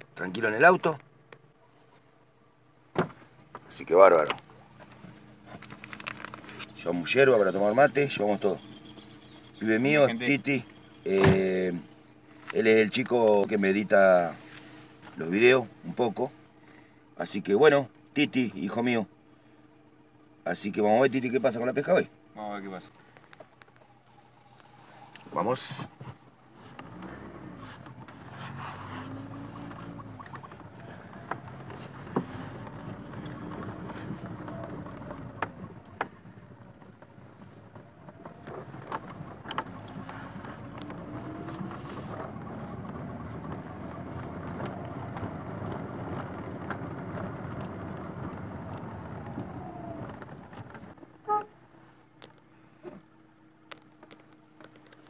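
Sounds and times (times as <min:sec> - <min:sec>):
road noise: 0:00.0 - 0:17.0, 0:20.5 - 0:55.0
car engine accelerating and shifting: 0:26.4 - 0:51.0
clicks and knocks in car: 0:29.4 - 0:51.4.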